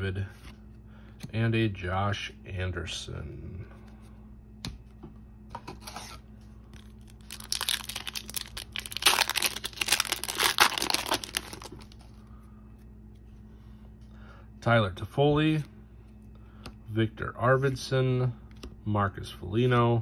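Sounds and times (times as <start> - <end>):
foil wrapper tearing and crinkling: 6.8 - 12.0.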